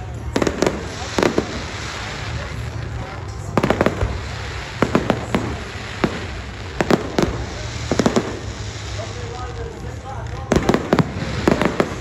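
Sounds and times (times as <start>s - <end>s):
fireworks exploding: 0.0s - 12.0s.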